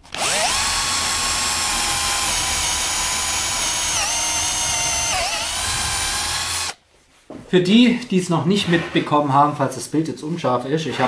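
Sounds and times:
cordless drill boring into wood: 0:00.0 - 0:06.8.

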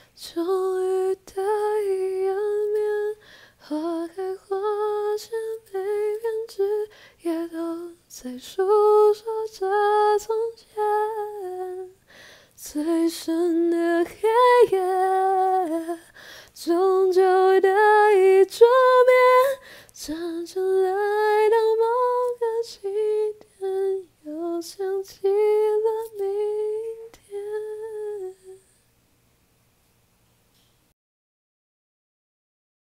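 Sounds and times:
woman singing a cappella: 0:00.0 - 0:28.8.

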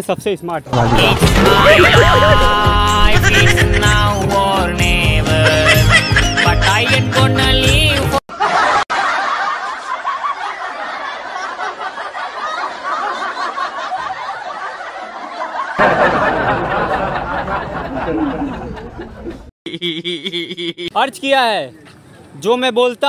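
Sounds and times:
background music: 0:00.8 - 0:08.2
people giggling and laughing: 0:01.0 - 0:04.2, 0:05.2 - 0:20.9.

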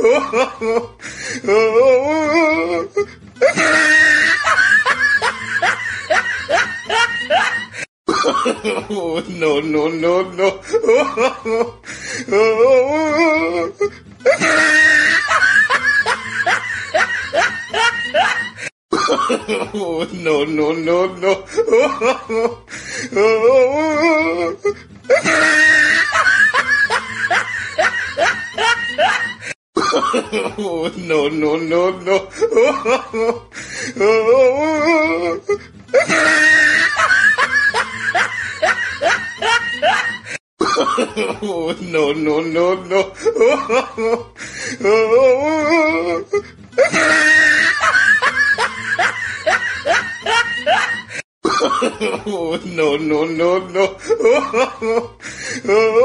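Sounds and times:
person laughing: 0:00.0 - 0:09.6, 0:10.4 - 0:20.4, 0:21.4 - 0:31.2, 0:32.2 - 0:42.1, 0:42.9 - 0:52.8, 0:53.8 - 0:56.0
music: 0:02.2 - 0:07.7, 0:09.4 - 0:18.7, 0:19.9 - 0:29.5, 0:30.8 - 0:40.3, 0:41.6 - 0:51.2
person laughing in whoops: 0:14.3 - 0:18.7, 0:44.9 - 0:51.2.

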